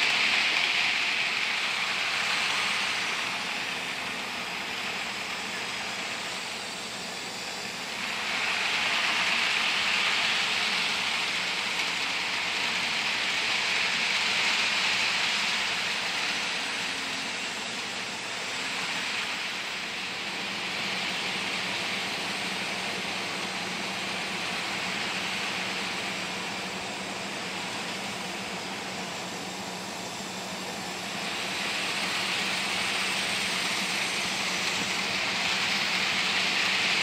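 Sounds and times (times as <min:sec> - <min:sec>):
model train wheels whirring: 0:00.0 - 0:37.0.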